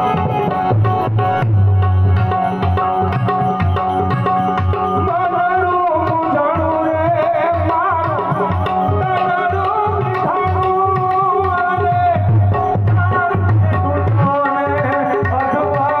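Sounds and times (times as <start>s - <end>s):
harmonium: 0.0s - 16.0s
tabla beat: 0.0s - 16.0s
man singing: 5.0s - 16.0s.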